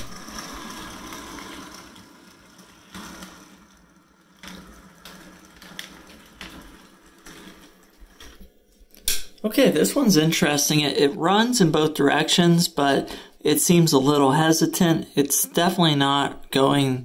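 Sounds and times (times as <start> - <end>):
small electric motor whirring: 0.0 - 8.4
sharp clicks from wheels and track: 0.0 - 9.3.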